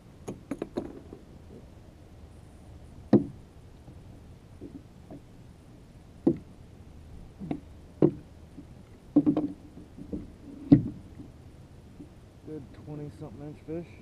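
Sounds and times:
knocks on kayak hull: 3.1 - 3.4, 7.4 - 8.2, 9.2 - 11.0.

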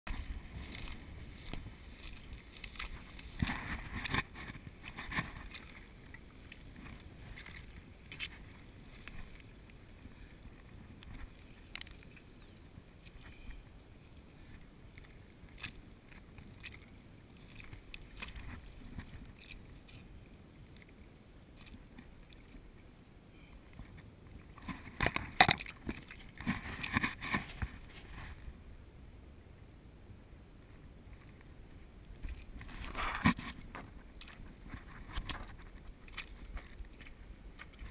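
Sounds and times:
steps on mud and shells: 0.1 - 5.8
wind rumble on microphone: 0.1 - 37.9.

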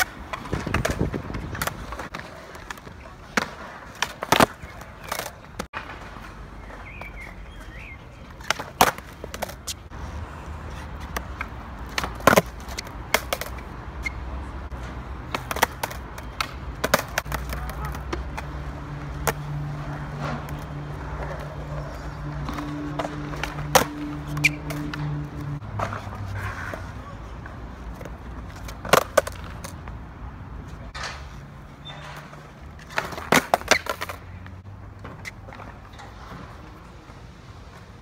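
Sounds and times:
skateboard deck clacking on ground: 0.0 - 6.3, 8.3 - 9.8, 11.0 - 13.7, 14.8 - 18.6, 25.8 - 29.9, 32.2 - 34.2
skateboard wheels rolling on concrete: 0.0 - 38.0.

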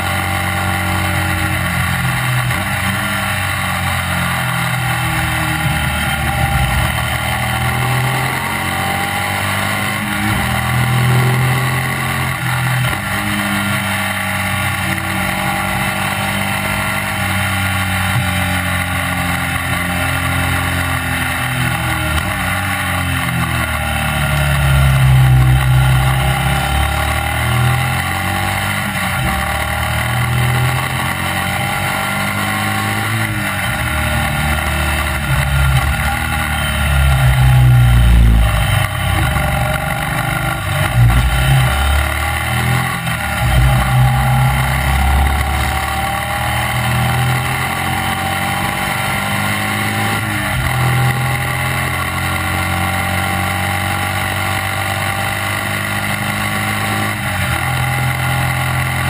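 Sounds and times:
racing engine running hard: 0.0 - 59.0.

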